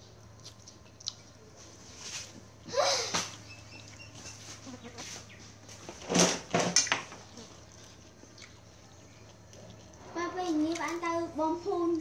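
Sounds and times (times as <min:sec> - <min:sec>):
faint steady hum: 0:00.0 - 0:12.0
farm animal calls: 0:03.0 - 0:05.6.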